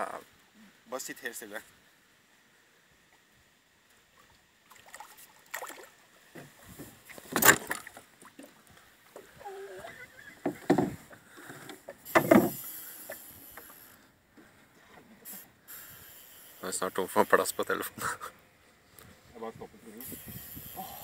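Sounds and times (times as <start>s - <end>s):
wooden handles knocking on hull: 10.4s - 11.0s.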